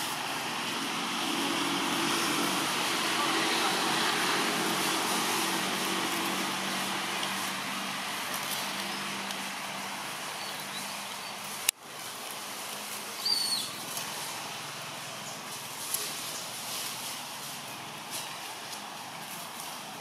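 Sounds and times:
outdoor background hiss: 0.0s - 20.0s
high bird chirp: 13.2s - 13.8s.

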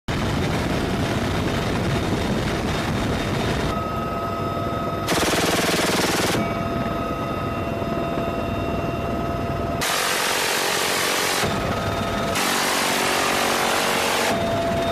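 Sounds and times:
helicopter turbine whine: 0.1s - 14.9s
machine-gun fire bursts: 5.1s - 6.4s.

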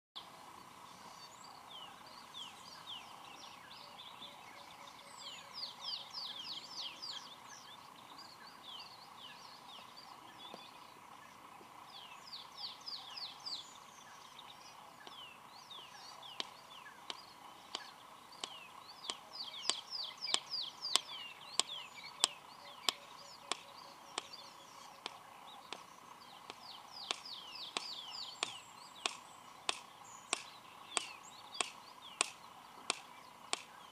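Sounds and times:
birds chirping: 0.2s - 33.9s
bird beak clicking: 25.0s - 33.8s.

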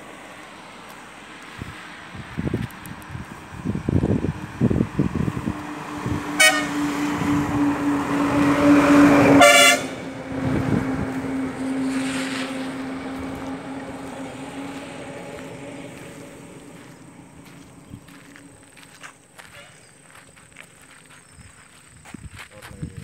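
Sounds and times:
vehicle engine and road noise: 0.0s - 23.0s
vehicle horn beeping: 6.4s - 7.0s, 8.8s - 10.2s, 18.4s - 20.0s.

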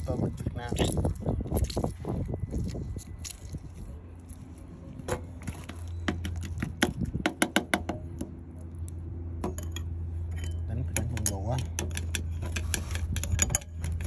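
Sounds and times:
steady low hum: 0.0s - 14.0s
metal spoon clinking in ceramic bowl: 9.5s - 14.0s.

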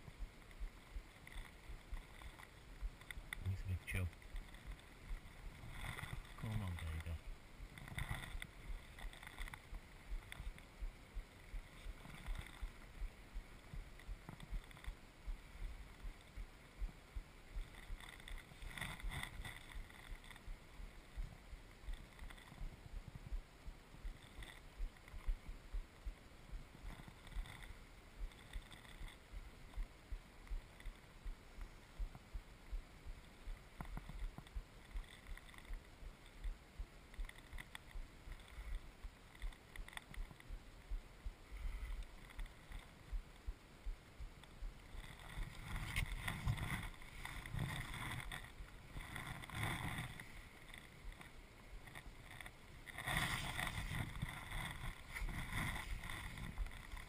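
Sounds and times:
faint rustle: 0.0s - 57.0s
low irregular thumps: 0.0s - 57.0s.

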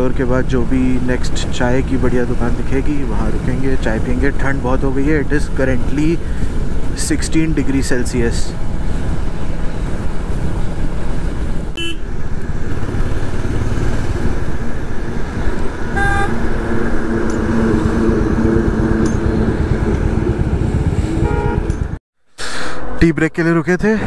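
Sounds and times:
road noise: 0.0s - 24.0s
motorcycle engine running: 8.6s - 22.0s
vehicle horn toots: 11.8s - 12.1s, 15.9s - 16.4s, 21.1s - 21.8s.

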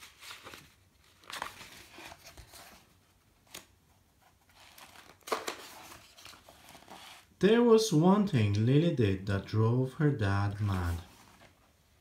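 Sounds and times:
book pages turning: 0.0s - 7.3s, 10.4s - 11.8s.

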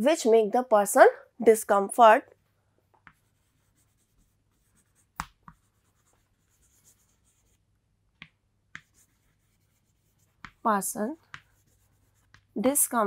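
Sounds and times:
chalk scratching on chalkboard: 3.0s - 7.6s, 8.8s - 12.8s
chalk tapping on board: 3.0s - 7.6s, 8.2s - 12.6s.

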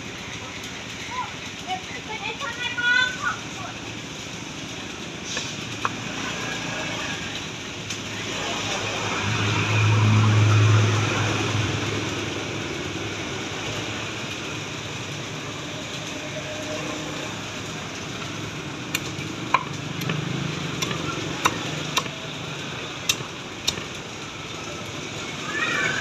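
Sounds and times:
cleaver chopping on wooden block: 20.8s - 22.1s.

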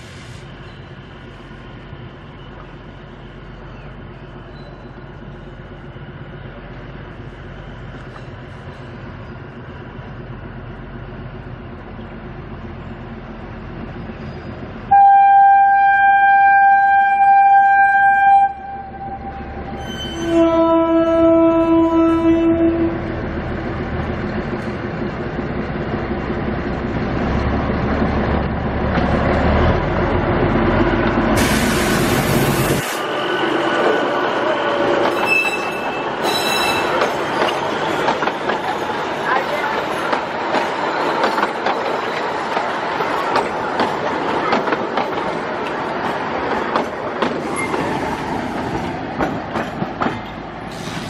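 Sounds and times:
diesel locomotive engine and wheels: 0.0s - 51.0s
locomotive horn blasts: 14.9s - 23.1s.

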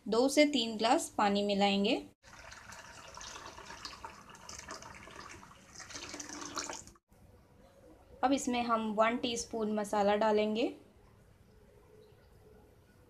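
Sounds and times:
water pouring into bowl: 2.2s - 7.0s.

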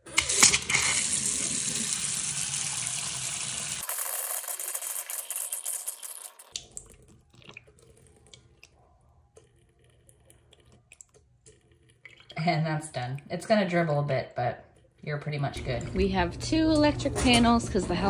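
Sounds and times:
faucet running into sink: 0.0s - 8.4s.

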